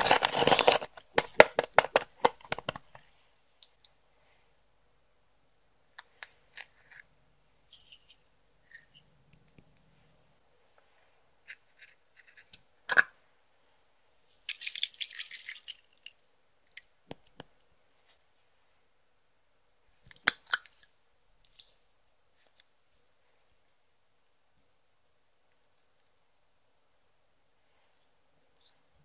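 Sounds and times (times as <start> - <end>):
containers rattling: 0.0 - 3.0
makeup containers clicking and tapping: 0.1 - 3.0.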